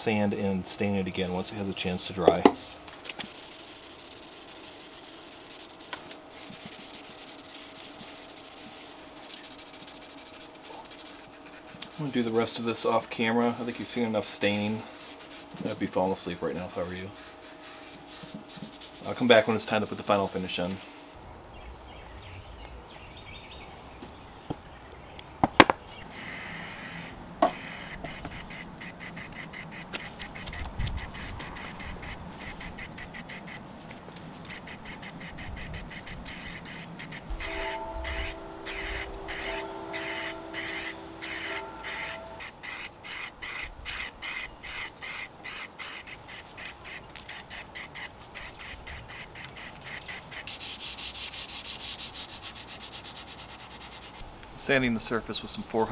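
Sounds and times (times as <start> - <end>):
aerosol spray hissing: 26.0 - 33.6, 34.5 - 54.2.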